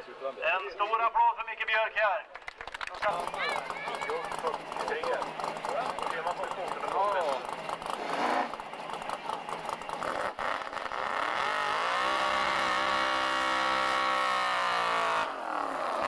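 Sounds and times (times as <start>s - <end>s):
tyres spinning: 2.7s - 11.1s
car engine revving hard: 4.5s - 16.0s.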